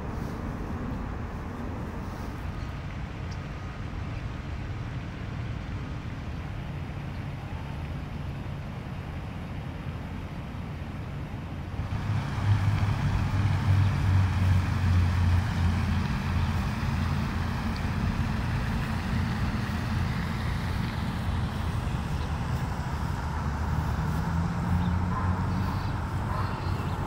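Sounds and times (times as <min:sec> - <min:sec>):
road traffic noise: 0:00.0 - 0:27.0
vehicle engine rumbling: 0:11.7 - 0:27.0.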